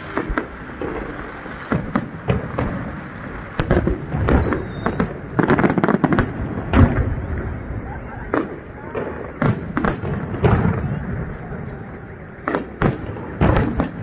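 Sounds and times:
firework shells bursting: 0.0s - 7.6s.

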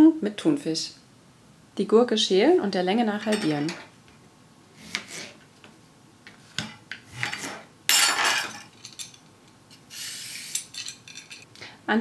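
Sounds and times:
utensils clattering: 3.1s - 3.9s, 6.6s - 9.3s, 10.4s - 11.5s.

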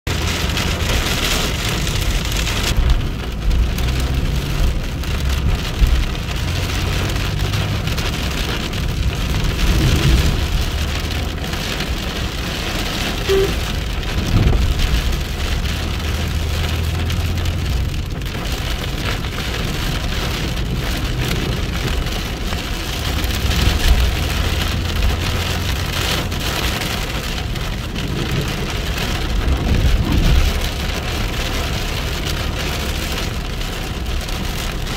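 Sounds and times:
heavy rain on hard surfaces: 0.0s - 34.9s
low thunder rumbling: 9.0s - 11.9s, 13.4s - 17.5s.

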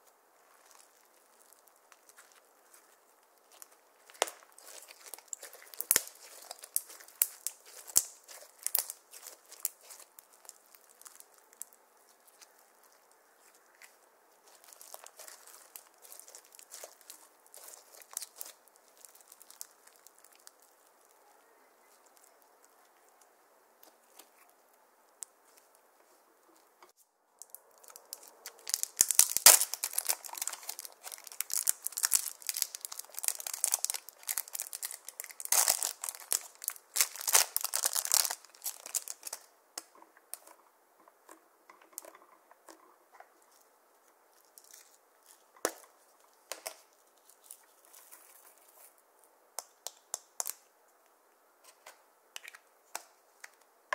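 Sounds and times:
plastic wrapper crinkling and tearing: 0.0s - 25.8s, 27.4s - 40.6s, 44.3s - 49.0s, 49.6s - 50.6s
slime crackling when squeezed: 0.5s - 21.2s, 27.4s - 40.5s.

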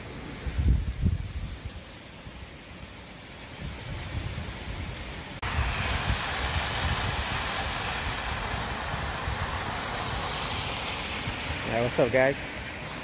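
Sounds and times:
wind rumble on microphone: 0.3s - 1.9s, 3.6s - 9.8s
waterfall rushing: 5.2s - 13.0s.

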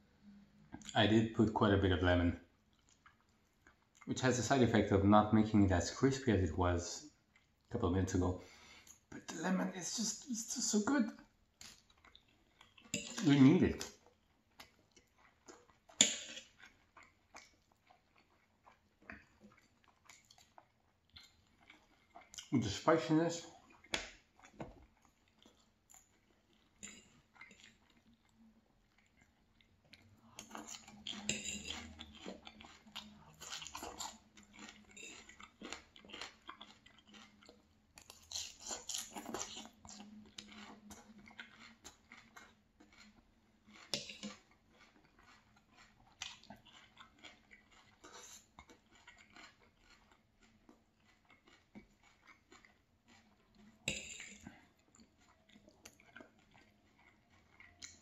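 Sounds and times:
chewing crunchy food: 1.9s - 58.0s
knife and fork clinking on plate: 13.0s - 13.3s, 31.2s - 31.9s.

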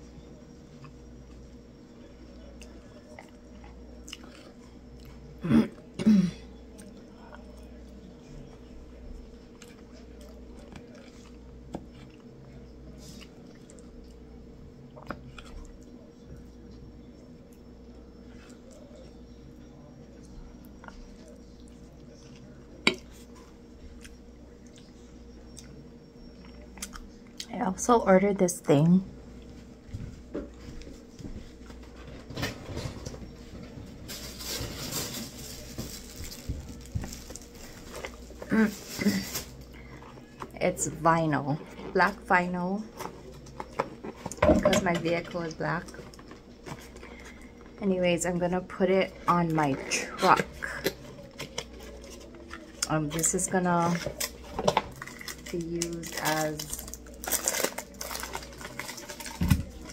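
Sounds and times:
faint steady hum: 0.0s - 59.9s
person chewing food: 2.4s - 5.9s, 9.2s - 14.3s, 14.9s - 16.0s, 20.2s - 27.5s, 50.5s - 53.2s.

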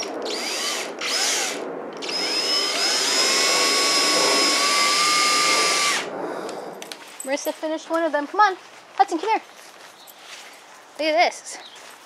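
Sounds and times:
power drill driving screw: 0.0s - 6.1s.

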